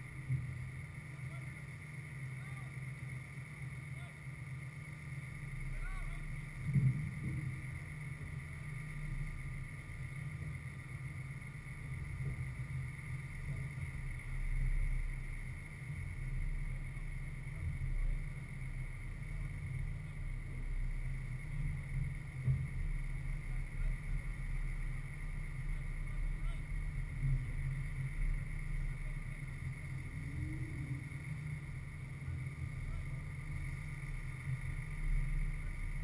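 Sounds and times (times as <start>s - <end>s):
faint high-pitched hum: 0.0s - 36.0s.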